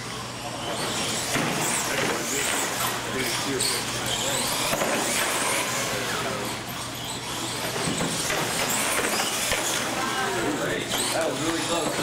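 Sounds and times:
electric motors whining: 0.0s - 12.0s
tyre noise on concrete: 7.6s - 12.0s.

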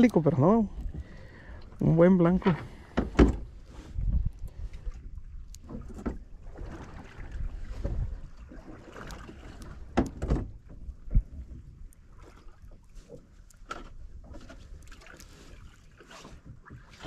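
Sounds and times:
wind buffeting microphone: 0.0s - 12.2s
water against boat hull: 0.0s - 17.0s.

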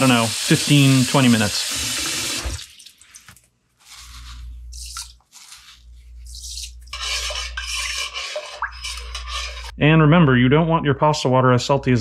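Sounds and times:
metal spoon scraping and clinking pot: 6.3s - 9.8s.

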